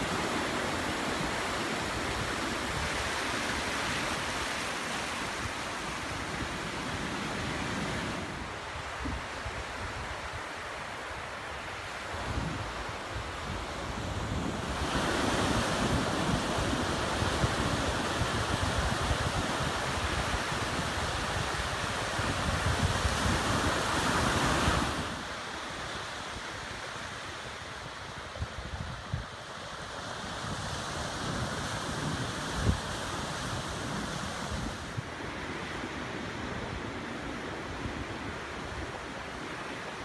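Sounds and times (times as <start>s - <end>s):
surf breaking on shore: 12.4s - 25.7s.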